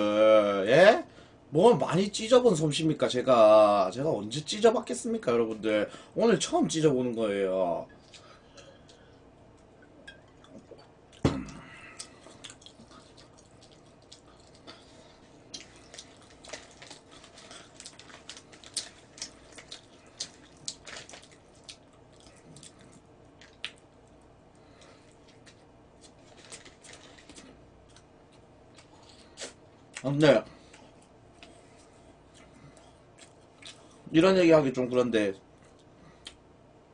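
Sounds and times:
chewing: 10.3 - 30.0
paper wrapper crinkling: 15.7 - 21.8, 25.3 - 27.6.

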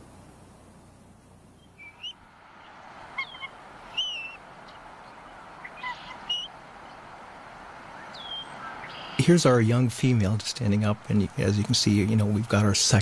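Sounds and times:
eagles chirping: 1.5 - 12.6
wind rushing: 2.2 - 12.5.

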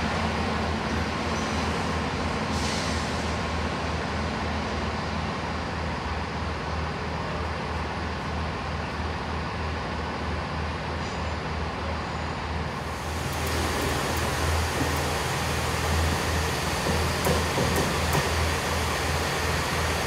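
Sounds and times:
diesel train engine humming: 0.0 - 20.0
air hiss: 2.5 - 3.6.

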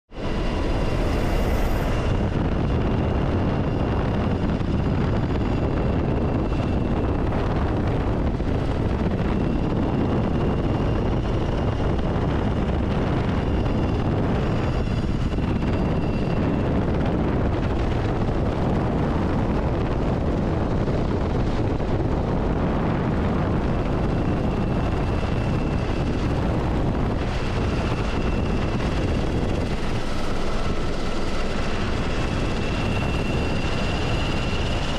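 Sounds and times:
faint high whine: 0.1 - 20.5
helicopter rotor and engine rumble: 0.1 - 34.9.

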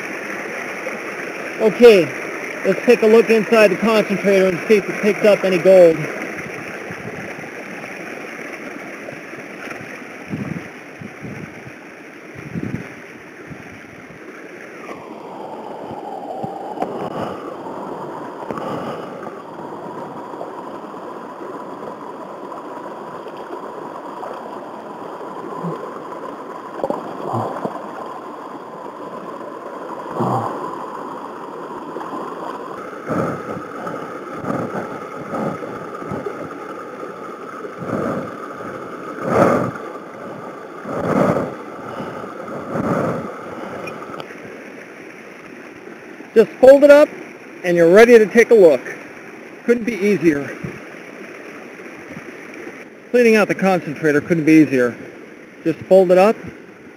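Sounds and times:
knocks and splashes in water: 0.0 - 15.1, 15.9 - 44.6
creek water rushing: 0.0 - 56.9.

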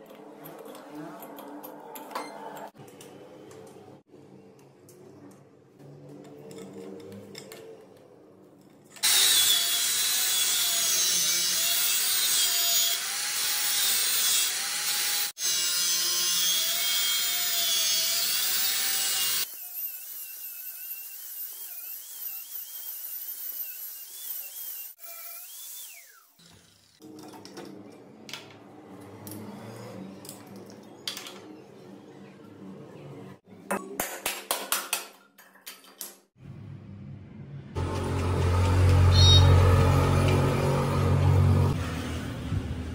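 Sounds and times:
angle grinder cutting steel: 9.0 - 27.0, 37.8 - 42.3.

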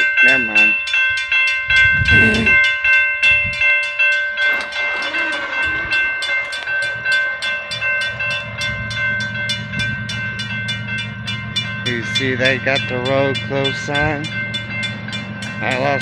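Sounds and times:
crossing warning bell ringing: 0.0 - 16.0
train locomotive rumble: 0.0 - 16.0.

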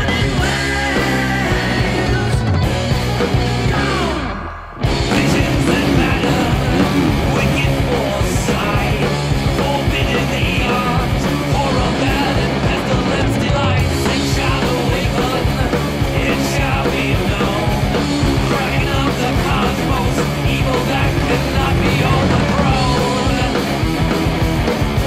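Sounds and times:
music with driving beat: 0.0 - 25.0.

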